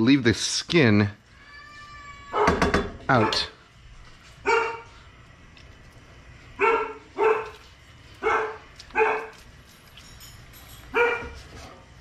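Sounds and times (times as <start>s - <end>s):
dog barking: 2.3s - 3.6s, 4.4s - 4.9s, 6.6s - 7.6s, 8.2s - 9.4s, 10.9s - 11.4s.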